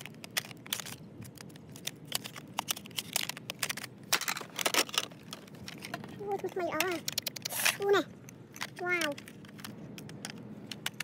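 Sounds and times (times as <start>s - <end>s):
small clicks of hard objects: 0.0s - 11.0s.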